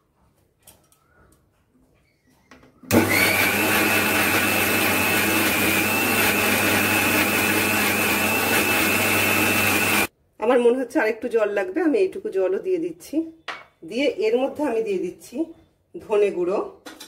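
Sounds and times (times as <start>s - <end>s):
mixer grinder whining: 2.9s - 10.1s.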